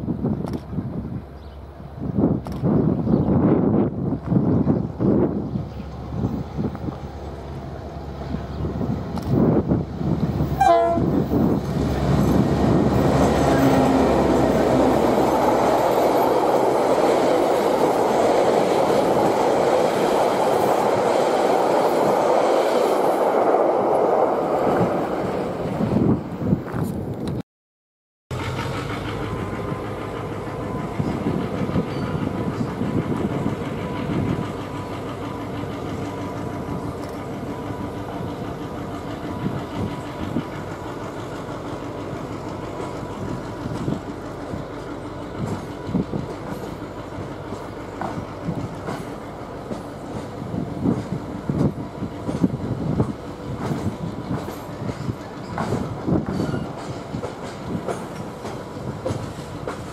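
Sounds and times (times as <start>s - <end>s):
train carriages rumbling: 0.0s - 27.3s, 28.3s - 59.9s
train wheels clicking over rail joints: 8.8s - 10.6s, 28.3s - 59.9s.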